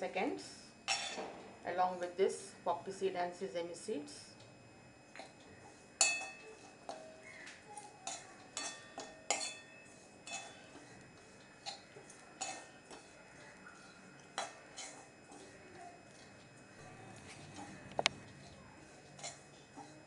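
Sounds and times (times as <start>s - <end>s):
metal spoon scraping a metal pan: 5.2s - 7.4s, 8.0s - 16.4s, 17.2s - 20.0s.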